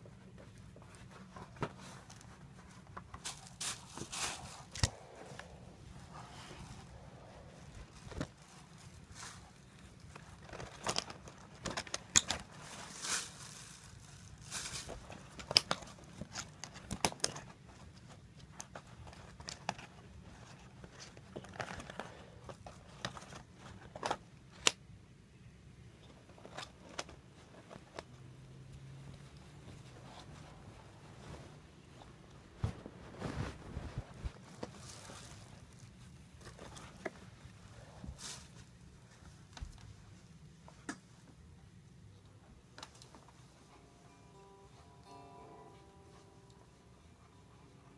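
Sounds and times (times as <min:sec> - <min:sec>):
blanket brushing over phone: 0:29.6 - 0:35.6.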